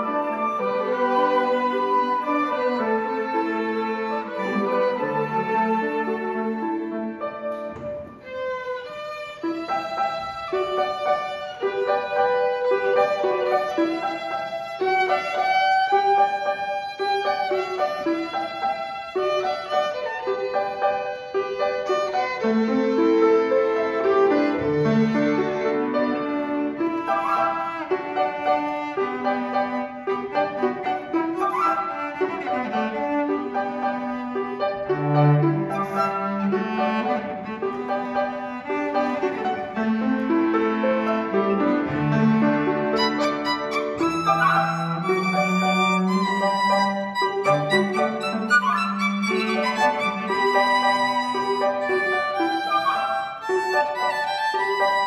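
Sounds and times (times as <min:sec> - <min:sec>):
string ensemble playing slow piece: 0:00.0 - 0:27.1
string ensemble playing slow melody: 0:00.0 - 0:55.0.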